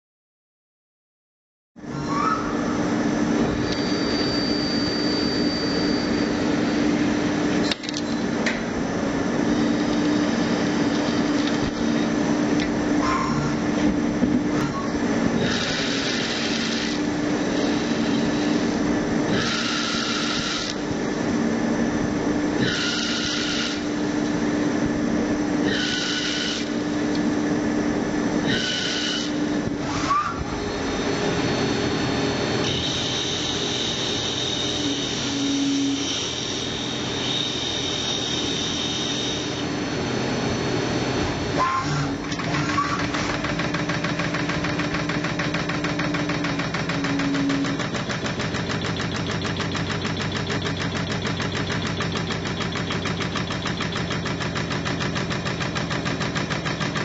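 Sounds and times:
high whining cutting tones: 0:01.9 - 0:08.2
lathe spindle humming: 0:02.9 - 0:30.0, 0:30.6 - 0:57.0.

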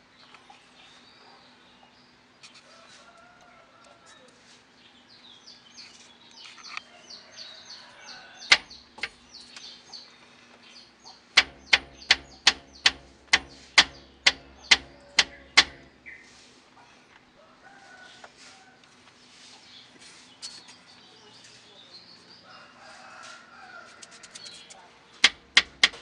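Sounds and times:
birds chirping faintly: 0:04.7 - 0:26.0
stabilizer bar knocking: 0:08.5 - 0:09.2, 0:11.4 - 0:16.1, 0:25.2 - 0:26.0.

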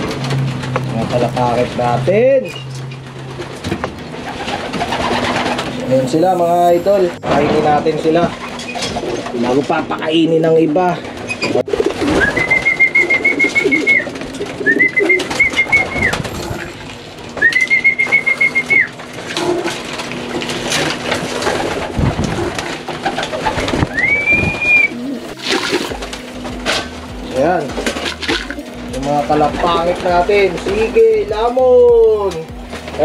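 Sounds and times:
high steady warbling notes: 0:04.0 - 0:08.3
pigeons cooing: 0:04.1 - 0:07.1, 0:11.0 - 0:30.9.

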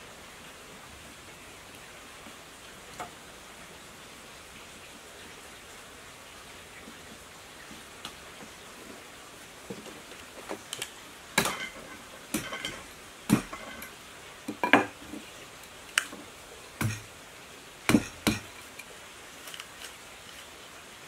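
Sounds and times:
hand tools clattering on workbench: 0:11.4 - 0:13.9.

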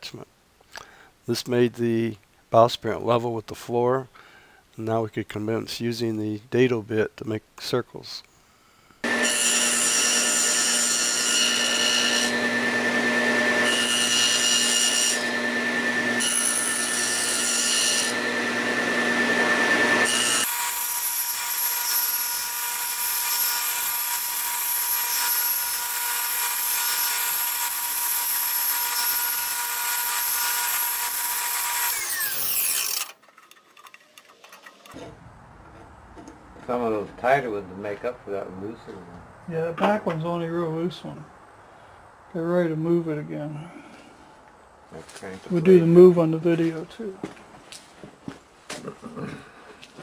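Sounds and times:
saw winding down: 0:09.0 - 0:20.9, 0:28.8 - 0:33.2
table saw cutting wood: 0:09.0 - 0:33.2.

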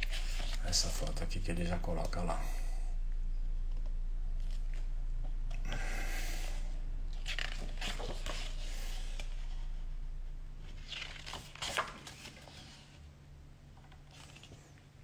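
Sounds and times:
book pages turning: 0:00.0 - 0:01.2, 0:04.4 - 0:04.9, 0:07.1 - 0:09.6, 0:10.6 - 0:13.1, 0:13.8 - 0:15.0
low hum: 0:00.0 - 0:15.0.

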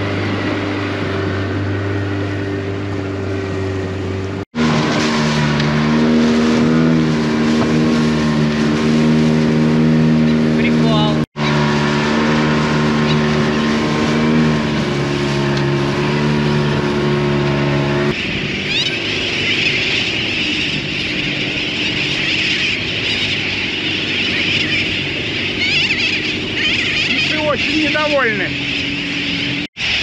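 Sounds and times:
outboard motor running: 0:00.0 - 0:30.0
seabird colony calling: 0:10.2 - 0:30.0.

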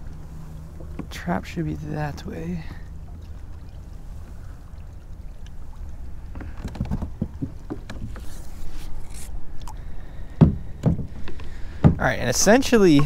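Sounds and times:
paddle splashing in water: 0:02.7 - 0:13.0
knocks against hull: 0:06.3 - 0:08.2, 0:10.4 - 0:12.2.

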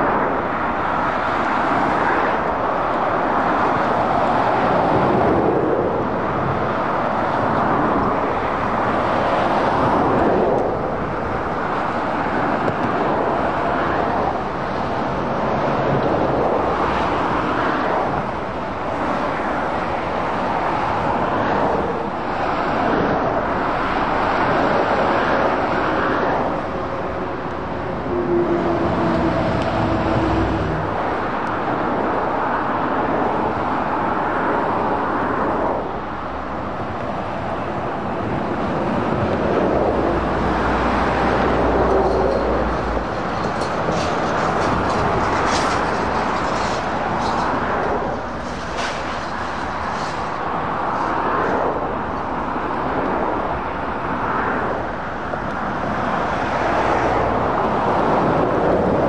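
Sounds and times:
motorway traffic noise: 0:00.0 - 0:59.0
deep lorry rumble: 0:18.2 - 0:32.4, 0:35.8 - 0:53.9.

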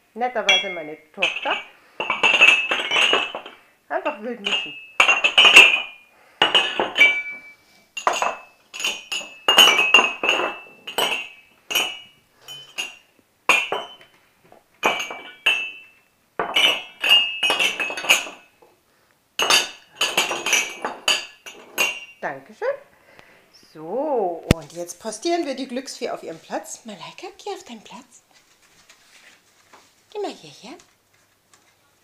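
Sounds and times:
ceramic mugs clinking: 0:00.4 - 0:14.2, 0:14.8 - 0:18.6, 0:19.4 - 0:22.2
mugs knocking on wooden floor: 0:00.6 - 0:03.6, 0:04.4 - 0:15.8.

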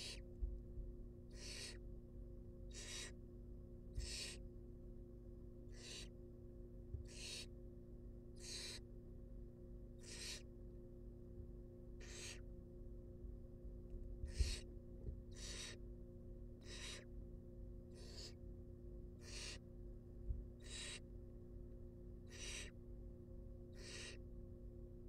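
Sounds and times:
owl nestlings hissing calls: 0:00.0 - 0:00.2, 0:01.3 - 0:01.8, 0:02.7 - 0:03.2, 0:03.9 - 0:04.4, 0:05.7 - 0:06.2, 0:07.0 - 0:07.5, 0:08.4 - 0:08.8, 0:10.0 - 0:10.5, 0:12.0 - 0:12.5, 0:14.3 - 0:14.7, 0:15.3 - 0:15.8, 0:16.6 - 0:17.1, 0:17.9 - 0:18.4, 0:19.2 - 0:19.6, 0:20.6 - 0:21.0, 0:22.3 - 0:22.8, 0:23.7 - 0:24.2
low electrical hum: 0:00.0 - 0:25.0.

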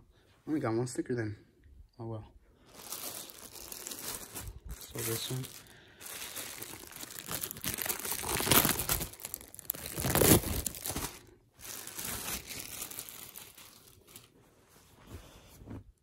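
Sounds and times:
plastic bag crinkling: 0:02.7 - 0:14.4.

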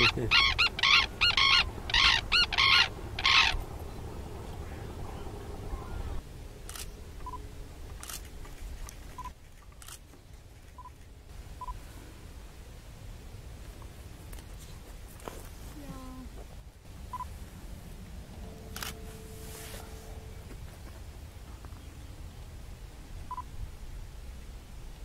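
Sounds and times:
cranes trumpeting: 0:00.0 - 0:08.3, 0:16.9 - 0:22.0
low rumble: 0:00.0 - 0:10.0, 0:16.0 - 0:24.8
short faint beeps: 0:11.6 - 0:11.8, 0:17.1 - 0:17.3, 0:18.4 - 0:20.6.

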